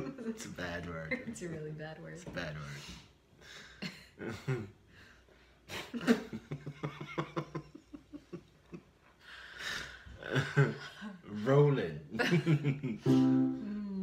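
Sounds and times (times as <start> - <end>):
soft human laughter: 3.5 - 4.8.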